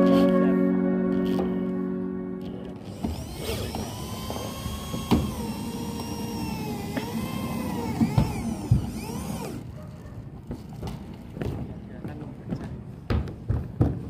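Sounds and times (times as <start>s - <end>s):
electric drill whining: 1.1s - 1.6s, 2.4s - 9.7s.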